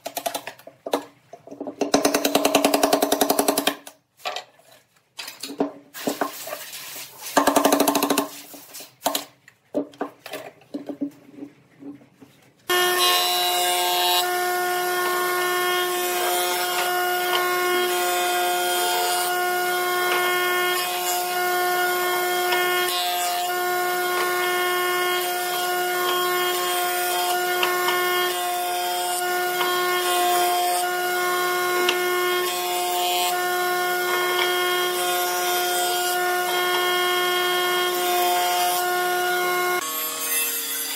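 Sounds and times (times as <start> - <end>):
jointer-planer humming: 12.7 - 40.9.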